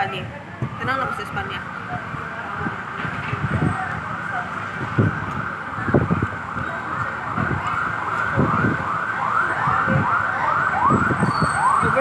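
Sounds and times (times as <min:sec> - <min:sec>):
siren yelping: 0:03.8 - 0:12.0.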